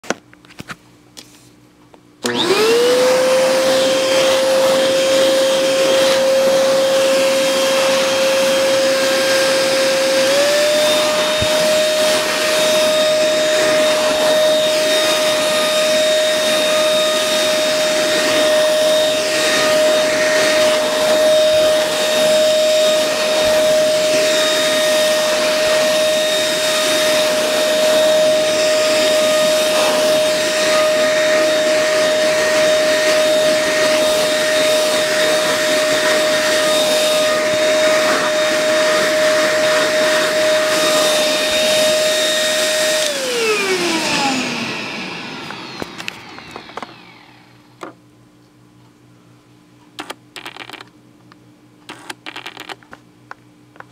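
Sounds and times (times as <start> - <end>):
handheld vacuum cleaner whine: 2.2 - 48.0.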